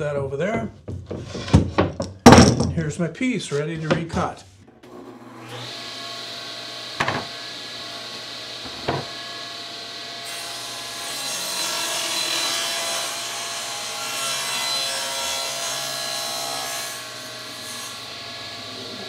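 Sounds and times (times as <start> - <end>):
plywood panel knocking on table: 0.8 - 2.7, 7.0 - 7.3, 8.7 - 9.1
saw blade cutting plywood: 4.8 - 7.4
table saw running: 4.8 - 19.0.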